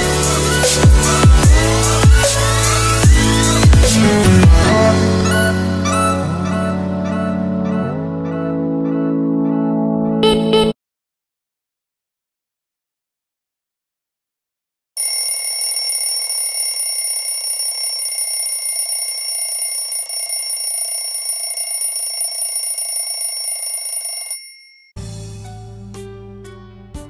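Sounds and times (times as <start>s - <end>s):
alarm ringing: 15.0s - 24.9s.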